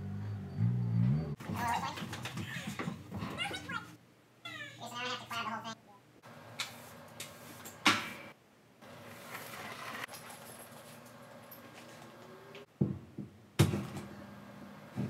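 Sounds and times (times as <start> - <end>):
push broom sweeping concrete: 9.1 - 10.2.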